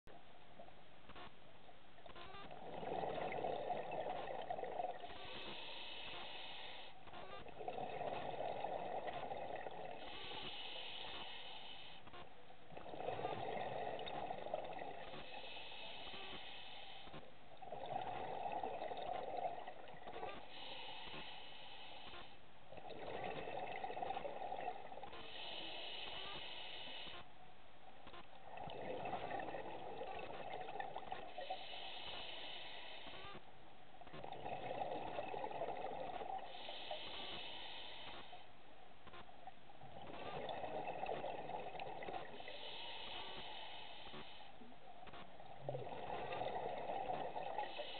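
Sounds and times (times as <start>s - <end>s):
regulator inhale hiss: 5.0s - 7.0s, 9.9s - 12.1s, 15.0s - 17.3s, 20.4s - 22.4s, 25.1s - 27.3s, 31.2s - 33.4s, 36.2s - 38.5s, 42.2s - 44.7s, 47.4s - 47.9s.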